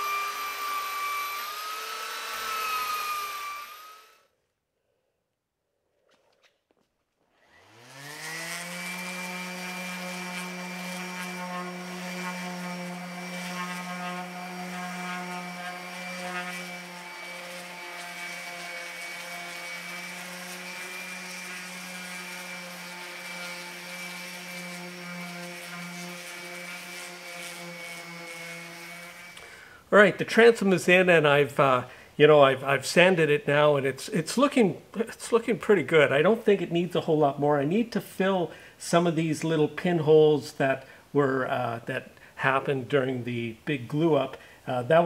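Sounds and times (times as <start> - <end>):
electric orbital sander whining: 0.0 - 4.2, 7.4 - 29.4.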